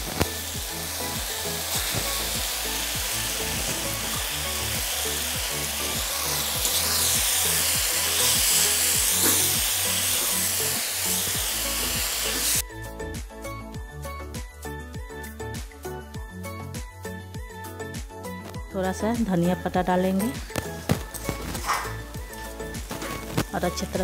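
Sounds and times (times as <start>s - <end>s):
noodles sizzling in a pan: 0.0s - 12.6s, 20.2s - 24.0s
background music with a beat: 0.0s - 24.0s.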